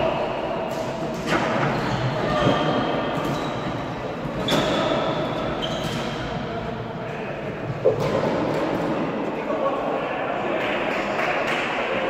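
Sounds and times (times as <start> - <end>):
echoing hall background: 0.0 - 12.0
shoe squeaks on court: 4.4 - 6.2.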